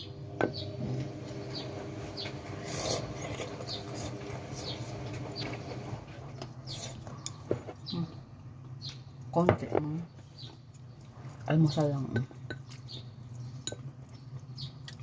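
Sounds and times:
person chewing and slurping noodles: 0:02.4 - 0:05.5.

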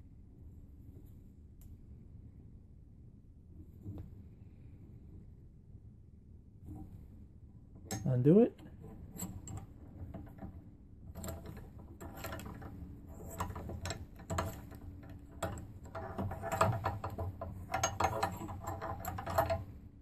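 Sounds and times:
metal tool clicks and rattles: 0:07.8 - 0:19.8.

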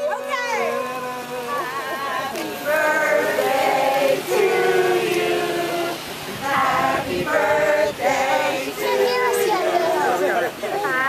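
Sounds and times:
group singing long held notes: 0:00.0 - 0:11.0.

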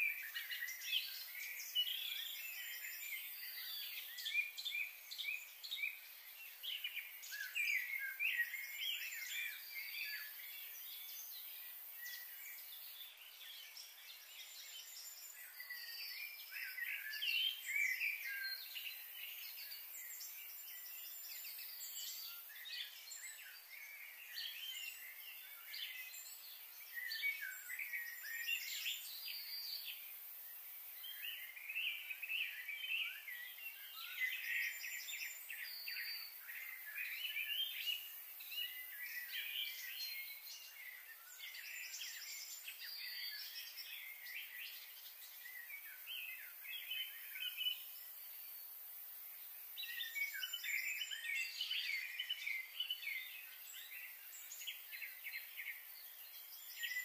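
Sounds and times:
small birds chirping and singing: 0:00.0 - 0:57.0.

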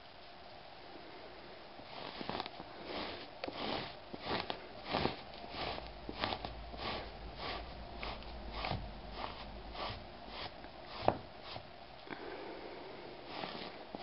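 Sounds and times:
brush scratching across rug: 0:01.8 - 0:11.7, 0:13.2 - 0:14.0.

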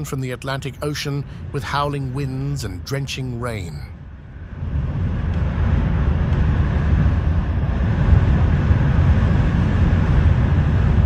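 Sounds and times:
wind buffeting microphone: 0:03.8 - 0:11.0.

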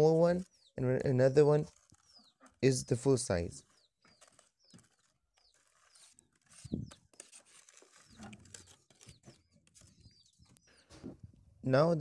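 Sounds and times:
faint bird chirps: 0:01.7 - 0:07.3.

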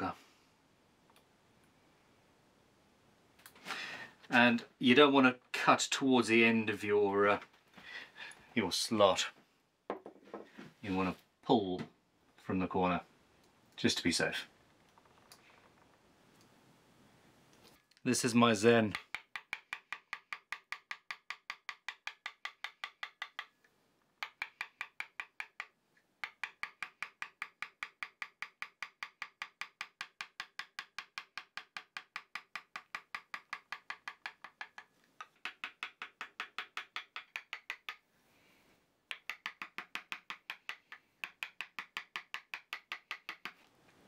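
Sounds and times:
wood-block-like taps music: 0:18.9 - 0:23.5, 0:24.2 - 0:38.0, 0:39.1 - 0:43.6.

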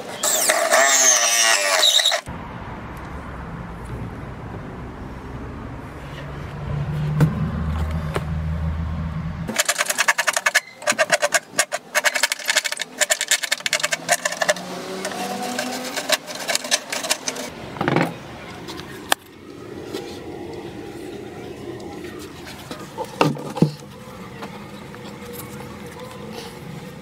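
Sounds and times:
hacksaw rasping through plastic: 0:00.0 - 0:02.3, 0:09.5 - 0:17.5
low hum: 0:12.0 - 0:27.0.

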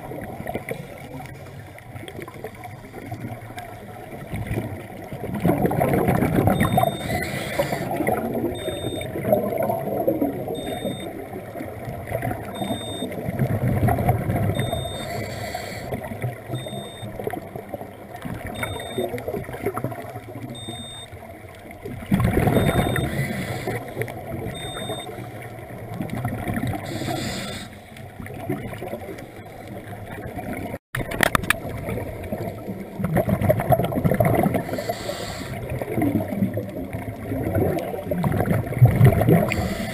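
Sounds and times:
low rumble of water: 0:00.0 - 0:39.9
bubbly regulator exhalations: 0:22.1 - 0:25.1, 0:37.4 - 0:39.9.

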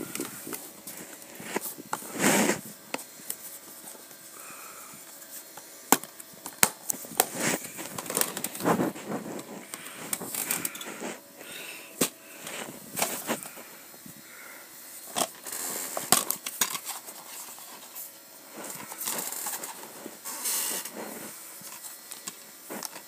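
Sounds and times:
plastic cases clacking: 0:06.0 - 0:08.6.

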